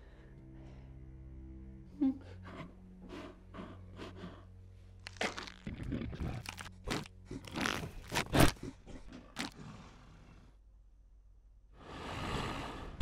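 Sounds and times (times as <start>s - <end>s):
wet crunching and cracking: 5.0s - 8.7s, 9.3s - 9.6s.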